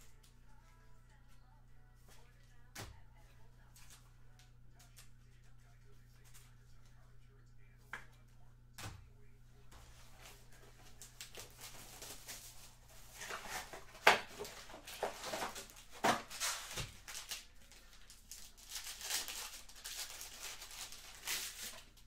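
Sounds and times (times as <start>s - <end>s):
foil wrappers crinkling and tearing: 10.0s - 22.0s.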